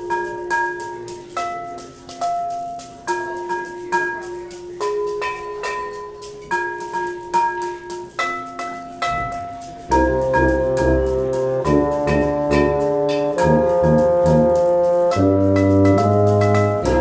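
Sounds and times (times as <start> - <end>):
chamber ensemble music: 0.0 - 17.0
low bass notes: 9.9 - 17.0.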